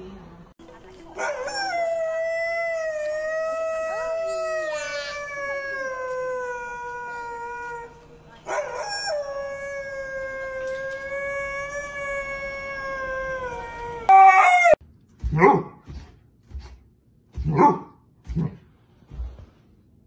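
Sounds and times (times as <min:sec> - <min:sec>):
dog howling: 0:01.2 - 0:14.8.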